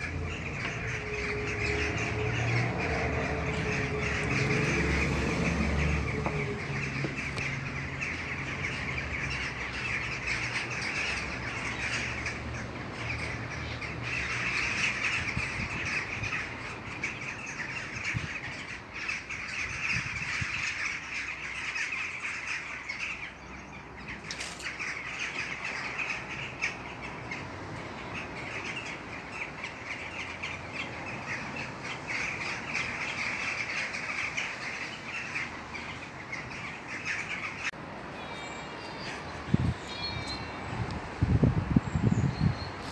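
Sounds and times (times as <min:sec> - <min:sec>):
flock of birds calling: 0:00.0 - 0:42.9.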